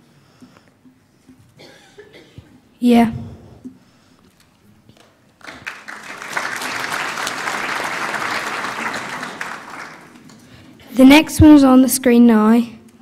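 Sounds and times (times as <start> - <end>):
congregation applauding: 5.0 - 10.8.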